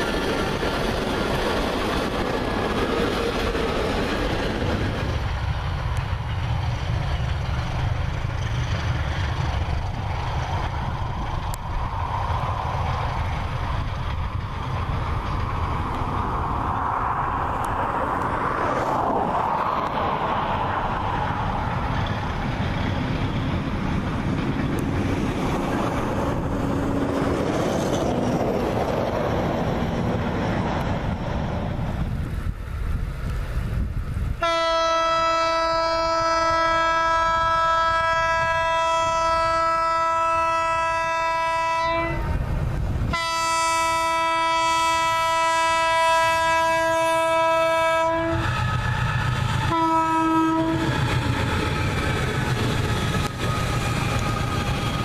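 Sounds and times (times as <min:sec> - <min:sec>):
diesel locomotive engine rumble: 0:00.0 - 0:55.0
locomotive air horn blasts: 0:34.4 - 0:42.3, 0:43.1 - 0:48.5, 0:49.7 - 0:50.9.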